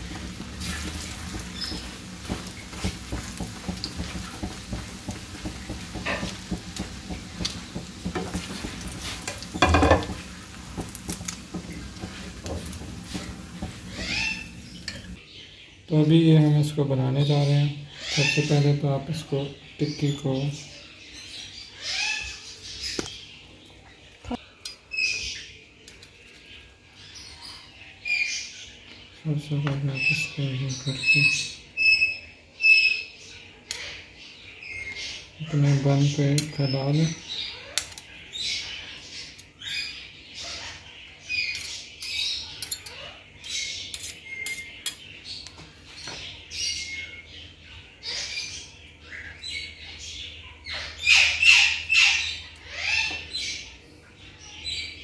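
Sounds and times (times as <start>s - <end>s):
knife and spatula scraping on board: 0.2s - 15.2s
high squeaky calls: 13.8s - 15.2s.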